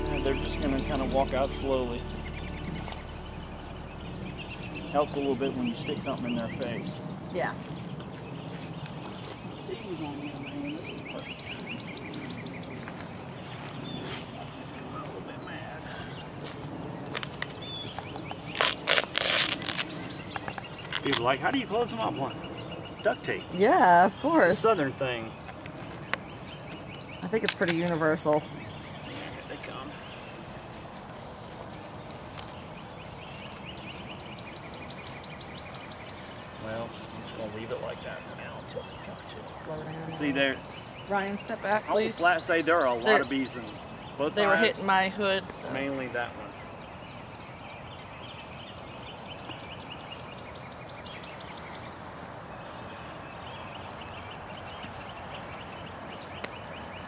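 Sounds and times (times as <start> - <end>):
bird trilling: 0.0 - 7.1
high chirping animal calls: 0.0 - 7.2
steady outdoor hiss: 0.0 - 57.0.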